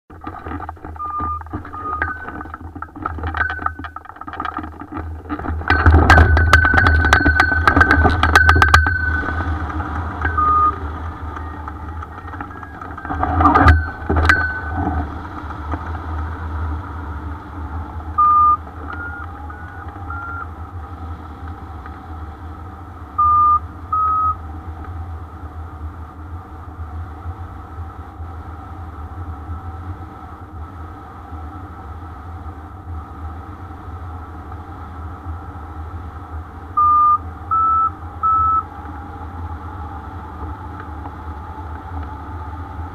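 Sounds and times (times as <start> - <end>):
short electronic beeps: 1.0 - 2.4, 10.2 - 14.8, 18.2 - 20.5, 23.2 - 24.4, 36.8 - 38.7.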